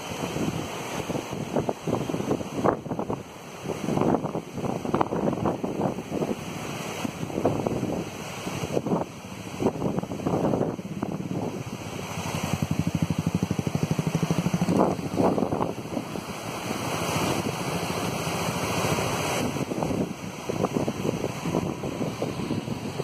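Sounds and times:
rushing river: 0.0 - 23.0
wind buffeting microphone: 0.0 - 23.0
motorcycle engine: 9.0 - 23.0.

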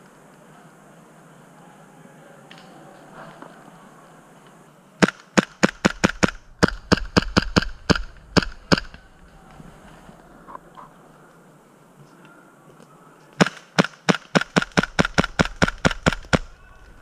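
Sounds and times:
airsoft pistol shots: 5.0 - 9.0, 13.4 - 16.6.

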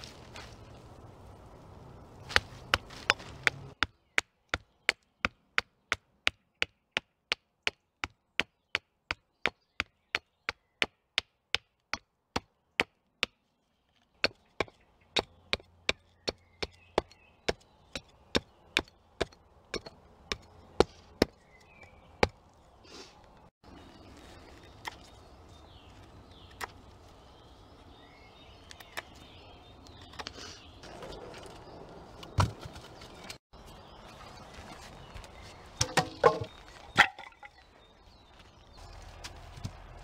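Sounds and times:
hatchet chopping wood: 2.3 - 13.4.

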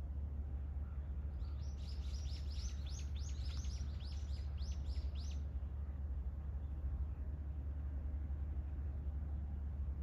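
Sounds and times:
steady low rumble: 0.0 - 10.0
bird chirping: 1.4 - 5.4.

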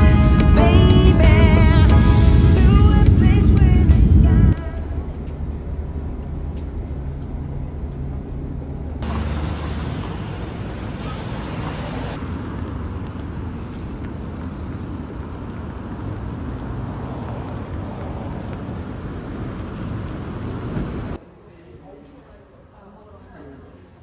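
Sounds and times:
vehicle engine humming: 0.0 - 21.2
loud hissy noise: 9.0 - 12.4.

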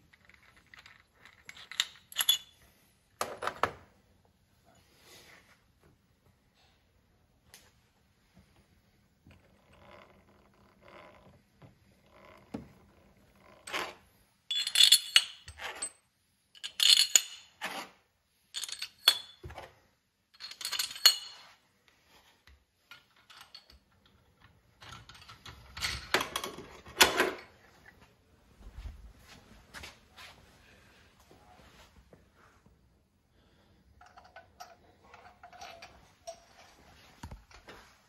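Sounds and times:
metal tools clinking and clattering: 0.0 - 2.7, 14.5 - 17.7, 18.5 - 19.7, 20.3 - 21.6, 22.8 - 27.6, 34.0 - 37.9.

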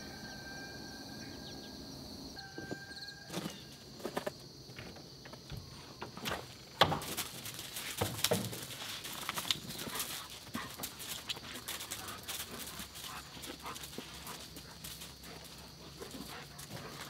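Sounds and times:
dog paws on gravel: 6.3 - 17.0.

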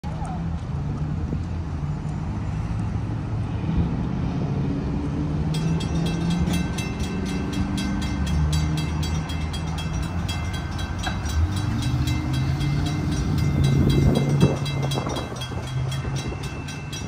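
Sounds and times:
low engine rumble: 0.1 - 17.0
railroad crossing bell clanging: 5.4 - 17.0.

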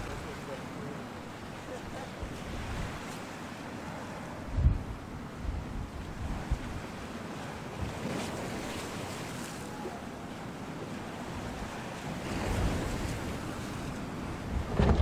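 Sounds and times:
rough sea and waves: 0.0 - 15.0
gale-force wind buffeting microphone: 1.4 - 3.1, 3.7 - 10.0, 11.0 - 15.0.

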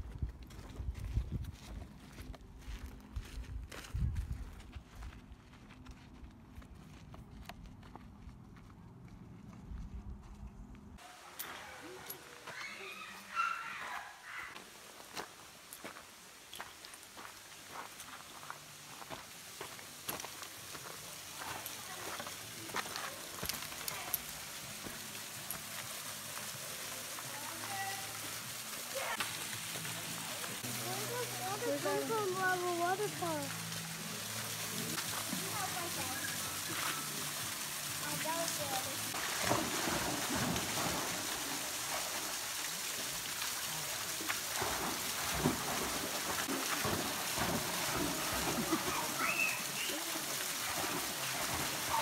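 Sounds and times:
waterfall splashing into pool: 14.5 - 52.0
dog splashing in water: 38.0 - 52.0.

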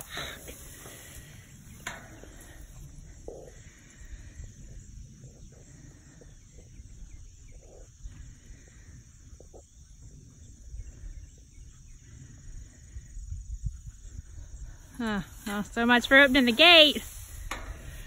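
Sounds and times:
distant cattle lowing: 0.0 - 13.2.

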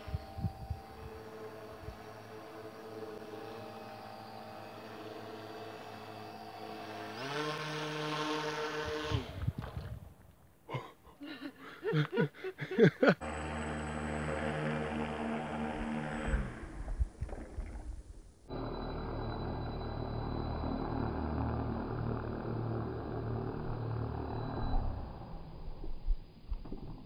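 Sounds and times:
boat motors whining: 0.0 - 9.5, 18.5 - 25.2.

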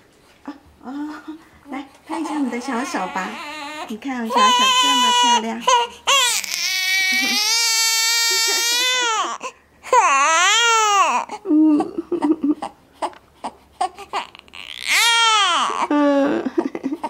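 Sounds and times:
baby crying: 2.1 - 11.4, 13.0 - 16.0
baby fussing: 12.6 - 15.9.

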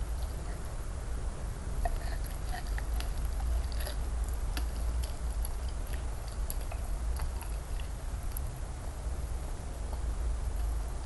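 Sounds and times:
wet chewing: 0.0 - 0.6, 1.8 - 8.5.

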